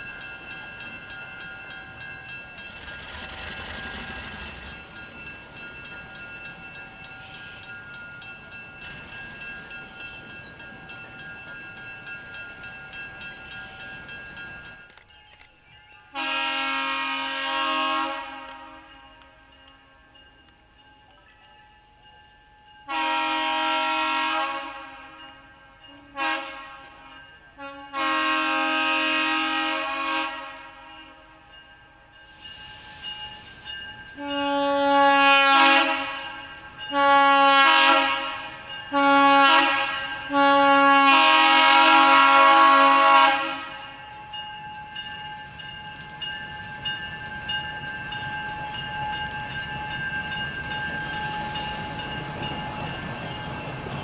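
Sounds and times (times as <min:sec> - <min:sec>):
locomotive air horn blasts: 0:16.1 - 0:19.1, 0:22.9 - 0:25.2, 0:25.9 - 0:31.3, 0:34.2 - 0:43.9.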